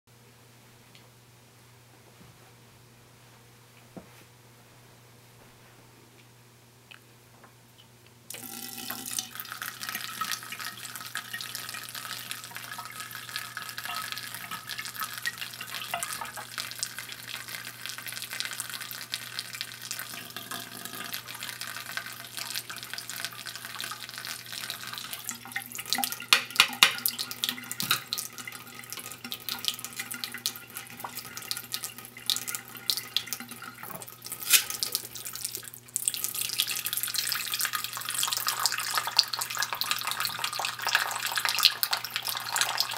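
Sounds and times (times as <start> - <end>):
water splashing into drain: 8.3 - 16.9.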